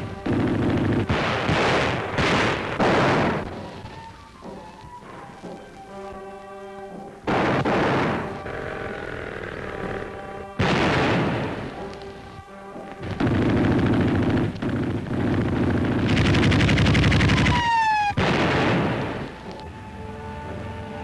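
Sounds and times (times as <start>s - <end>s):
rapid machine-gun fire: 0.0s - 4.6s, 7.3s - 11.9s, 13.0s - 19.4s
shell blasts: 0.0s - 19.7s
film score: 0.0s - 21.0s
falling whistle: 17.4s - 18.2s.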